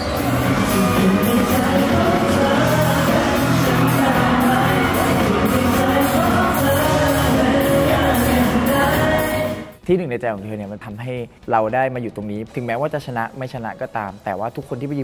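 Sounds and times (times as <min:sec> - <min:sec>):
crowd noise: 0:00.0 - 0:09.8
live pop music with singing: 0:00.0 - 0:09.8.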